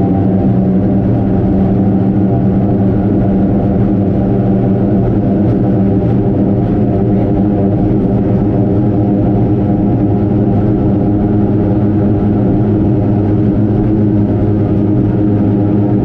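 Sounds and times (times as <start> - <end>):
boat engines running steadily: 0.0 - 16.0.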